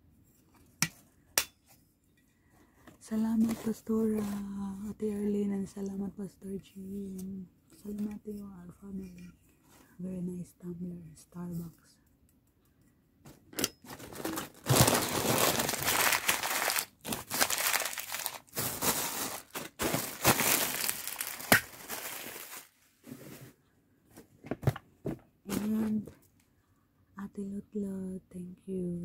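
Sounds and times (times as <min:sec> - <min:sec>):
packaging crinkling and tearing: 0:13.9 - 0:22.8.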